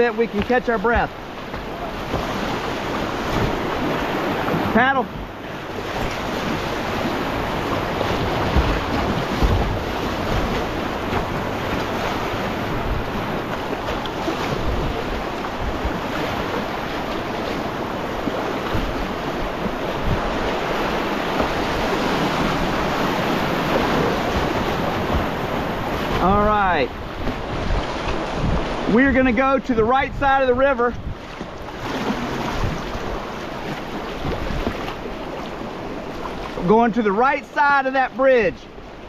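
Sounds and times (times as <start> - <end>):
wind buffeting microphone: 0.0 - 36.5
whitewater rushing and splashing: 0.0 - 39.0
low thumps: 23.7 - 26.3.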